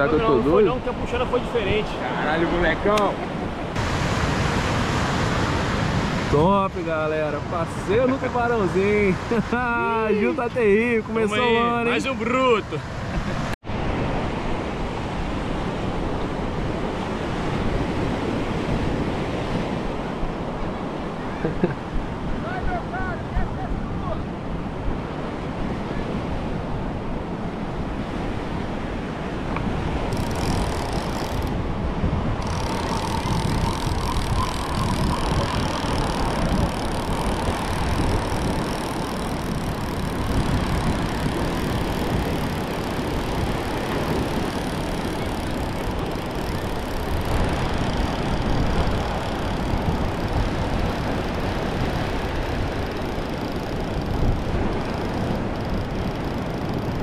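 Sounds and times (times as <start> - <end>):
ocean surf on beach: 0.0 - 57.0
wind buffeting microphone: 21.8 - 57.0.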